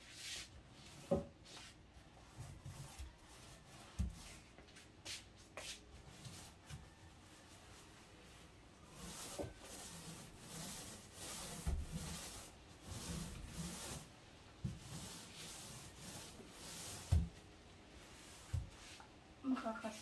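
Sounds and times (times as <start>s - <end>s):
paint brush strokes hissing: 8.0s - 14.2s, 14.8s - 17.3s.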